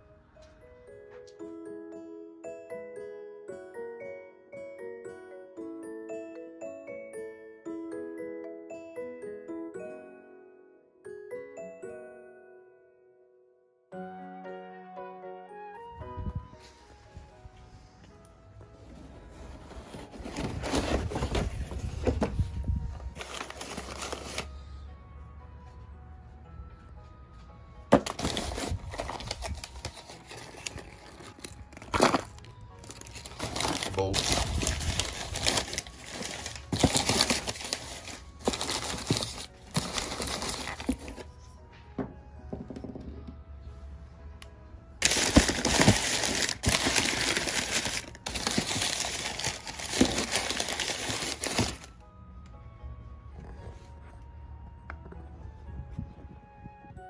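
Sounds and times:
faint background music: 13.9s - 57.0s
newspaper crinkling and rustling: 19.4s - 24.5s, 27.9s - 41.3s, 45.0s - 52.0s.

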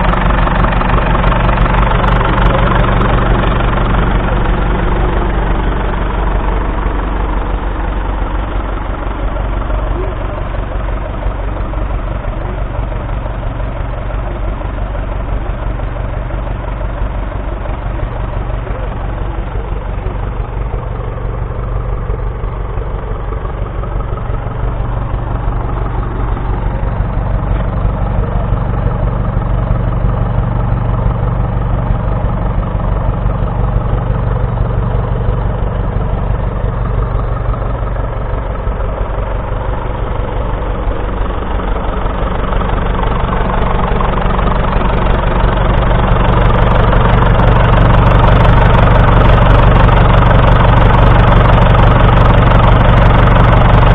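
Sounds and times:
tractor diesel engine idling: 0.0s - 53.9s.

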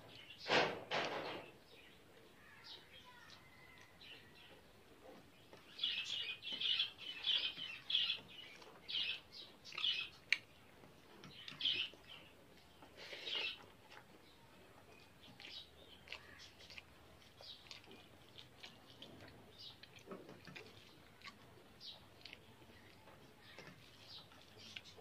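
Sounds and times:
eating by hand from steel plate: 9.6s - 25.0s.

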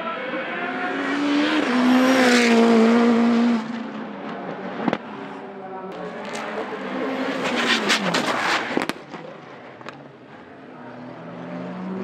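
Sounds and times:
car engine revving: 0.5s - 9.2s
exhaust pops and crackles: 7.8s - 10.0s.

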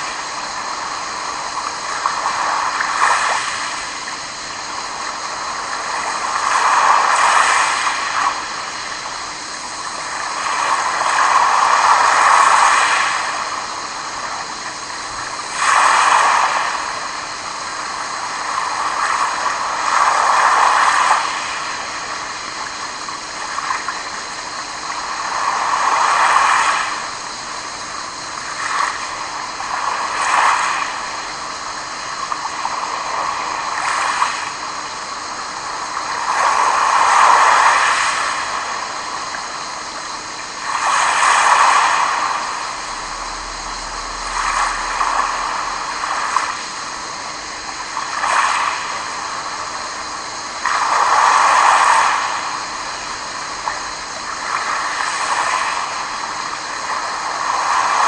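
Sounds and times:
waves washing on pebble beach: 6.0s - 8.3s, 10.2s - 13.6s, 15.2s - 17.1s, 40.6s - 47.0s, 47.6s - 49.7s, 50.6s - 53.2s, 56.8s - 58.0s.

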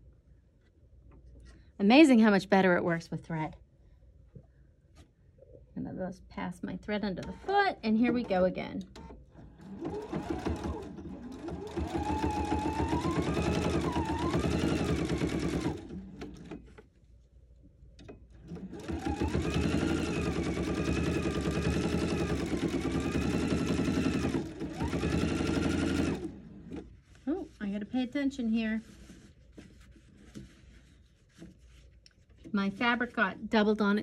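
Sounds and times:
sewing machine stitching: 9.0s - 16.7s, 18.3s - 26.9s.

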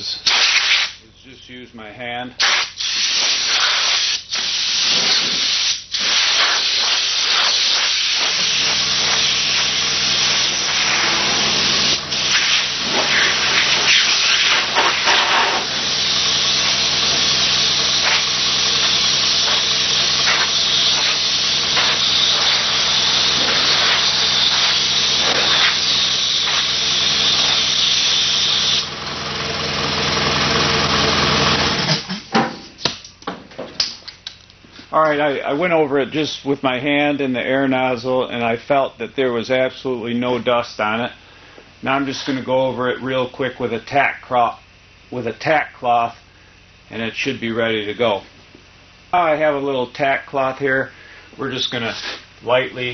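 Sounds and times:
air blow gun hissing: 0.2s - 1.0s, 2.4s - 28.9s
steady low hum: 1.0s - 3.4s, 5.4s - 31.0s, 32.0s - 52.9s.

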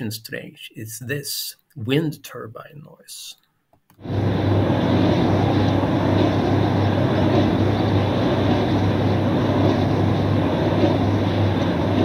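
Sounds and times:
steady low hum: 4.0s - 12.0s
wind turbine rushing noise: 4.0s - 12.0s.

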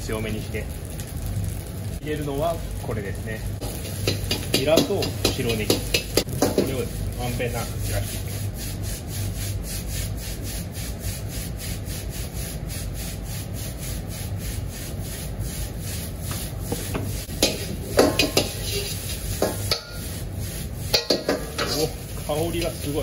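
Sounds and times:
gas burner rumble: 0.0s - 23.0s
rice scraping across wok: 3.6s - 23.0s
metal ladle scraping wok: 16.0s - 23.0s.

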